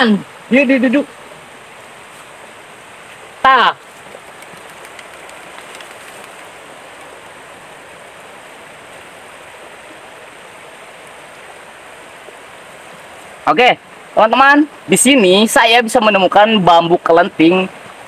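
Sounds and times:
fast-flowing river rushing: 0.0s - 18.0s.

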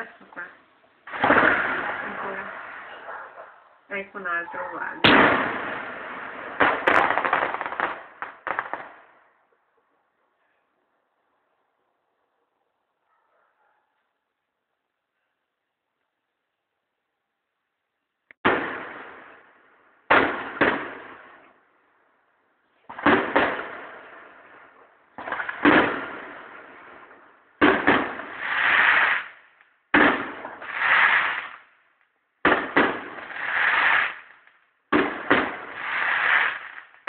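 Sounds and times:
fireworks bursting: 1.0s - 9.2s, 18.3s - 21.5s, 22.8s - 31.8s, 32.4s - 37.0s.

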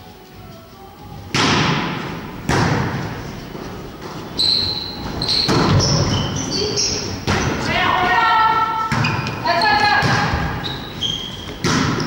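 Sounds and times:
volleyball being struck: 1.3s - 3.1s, 8.6s - 9.4s, 10.0s - 10.6s, 11.6s - 12.0s.

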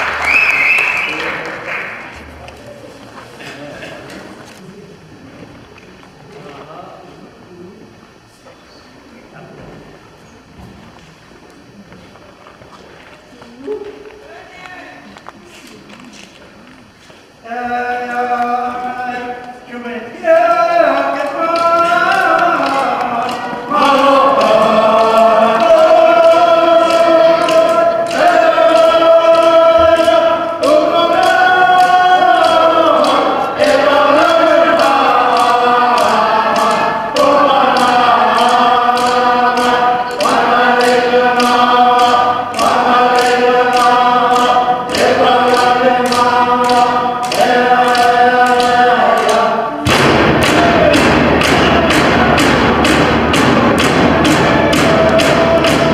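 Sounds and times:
group singing in unison: 17.4s - 55.9s
frame drums beating: 20.3s - 55.9s.

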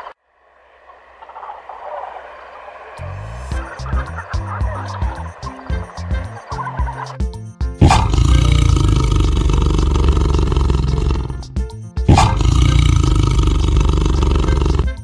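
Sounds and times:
large animal calling: 7.8s - 11.4s, 12.1s - 15.0s.

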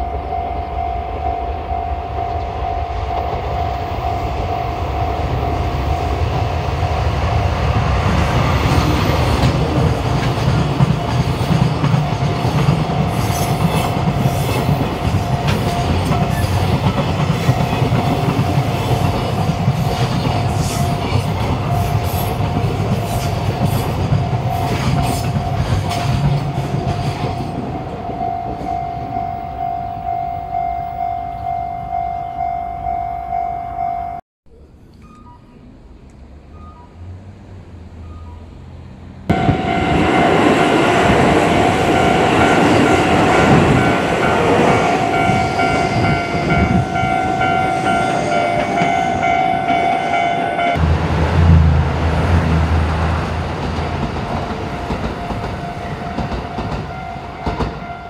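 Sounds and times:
steady high ringing tone: 0.0s - 8.0s, 11.8s - 35.6s, 39.3s - 50.8s
diesel locomotive engines droning: 0.0s - 58.0s.

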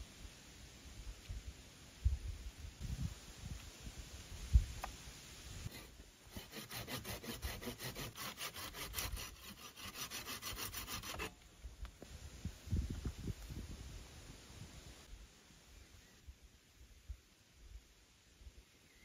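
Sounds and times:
hand saw cutting wood: 5.7s - 11.4s.

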